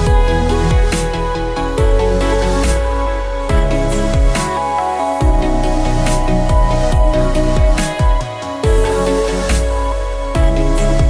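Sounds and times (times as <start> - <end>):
deep kick drums: 0.0 - 2.1, 3.5 - 4.5, 6.5 - 9.0
held synth chords: 0.0 - 11.0.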